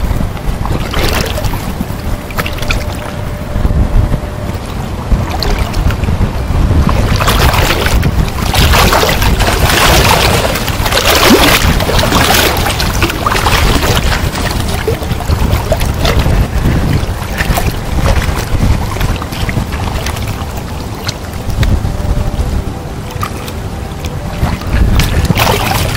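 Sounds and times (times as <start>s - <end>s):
wind buffeting microphone: 0.0s - 25.9s.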